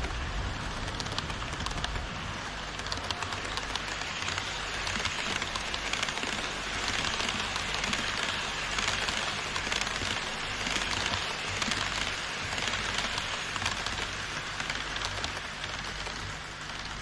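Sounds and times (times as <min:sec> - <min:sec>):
quick ticks: 0:00.0 - 0:02.0
model train wheels clattering: 0:00.0 - 0:17.0.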